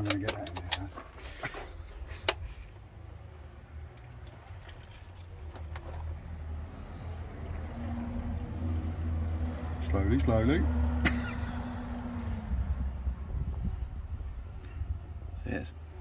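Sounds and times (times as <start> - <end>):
liquid sloshing in plastic tub: 3.8 - 8.4
low rumble: 10.8 - 15.4.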